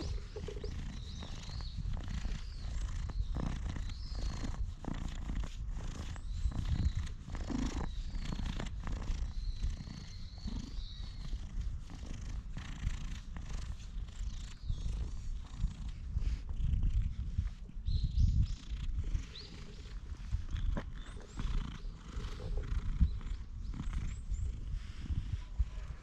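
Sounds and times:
hand rubbing fur: 0:00.0 - 0:09.2
cat purring: 0:00.0 - 0:26.0.

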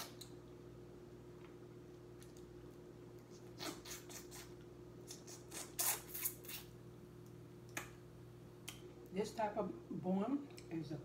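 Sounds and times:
lip smacks and slurps: 0:03.2 - 0:06.7.

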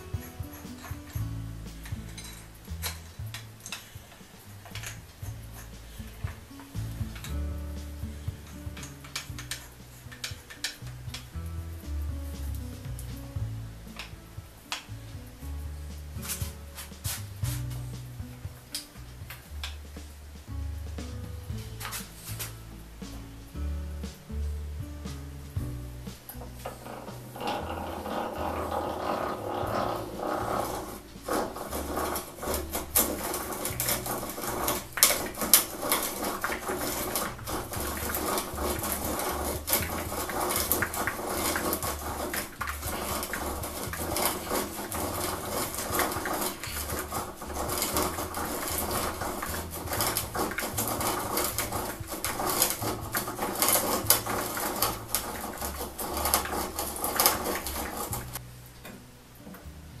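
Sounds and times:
hand drill boring wood: 0:26.4 - 0:58.4.

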